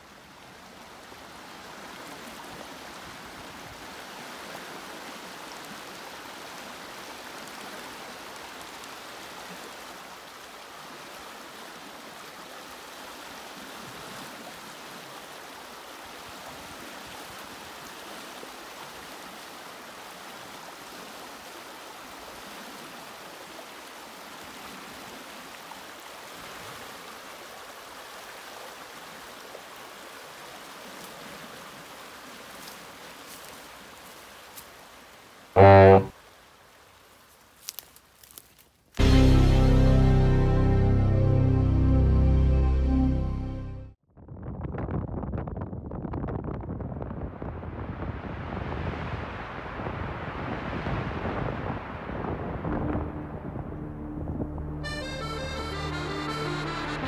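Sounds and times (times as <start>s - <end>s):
river water rushing over gravel: 0.0s - 38.4s.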